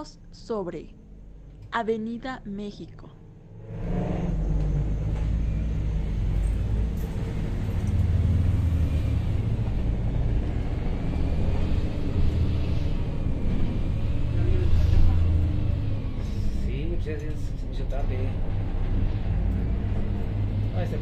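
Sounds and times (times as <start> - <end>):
bus engine and road rumble: 0.0 - 21.0.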